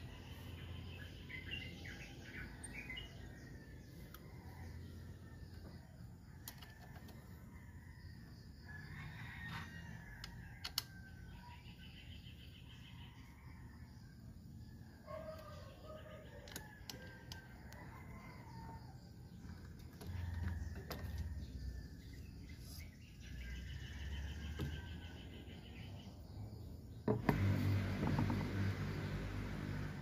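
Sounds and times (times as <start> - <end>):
birds chirping: 0.0 - 4.7.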